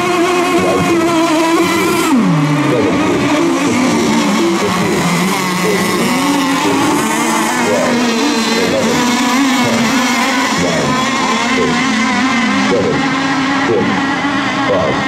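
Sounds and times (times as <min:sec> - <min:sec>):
model boat motors buzzing: 0:00.0 - 0:15.0.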